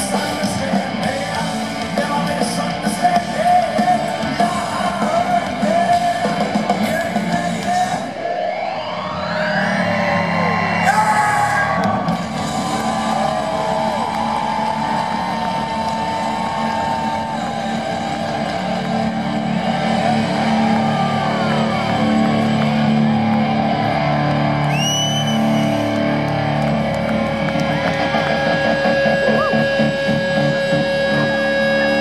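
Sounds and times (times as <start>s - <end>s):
live hard rock band: 0.0s - 8.5s, 10.6s - 32.0s
electric guitar gliding notes: 11.6s - 32.0s.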